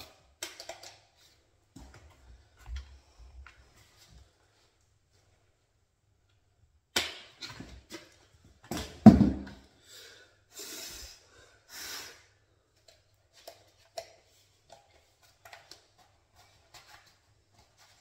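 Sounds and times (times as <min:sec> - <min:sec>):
short breathy hisses: 0:10.5 - 0:12.3.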